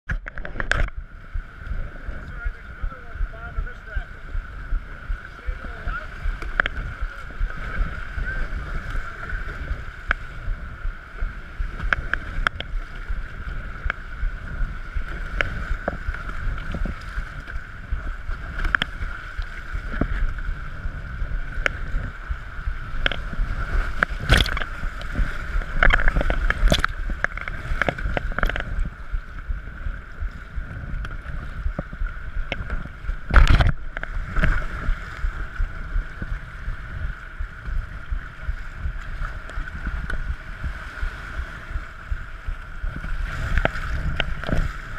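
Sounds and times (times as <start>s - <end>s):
wind rumbling on microphone: 0.0s - 44.9s
paddle blades splashing: 0.1s - 44.9s
water slapping deck: 2.2s - 44.9s.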